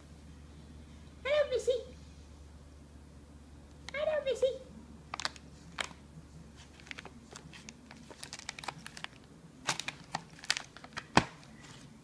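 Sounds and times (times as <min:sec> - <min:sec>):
plastic packaging crinkling: 0:05.1 - 0:06.0, 0:06.6 - 0:11.9.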